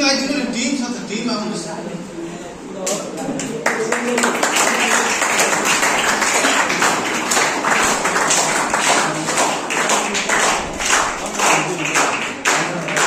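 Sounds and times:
audience clapping: 0:03.4 - 0:13.0.

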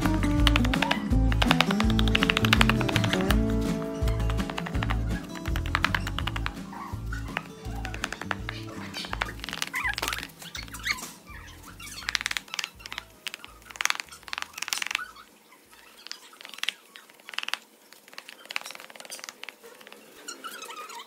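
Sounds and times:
background music: 0:00.0 - 0:13.7.

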